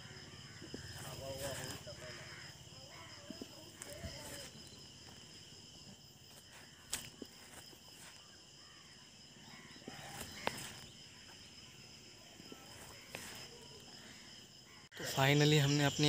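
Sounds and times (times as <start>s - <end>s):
high-pitched insect drone: 0.0s - 16.0s.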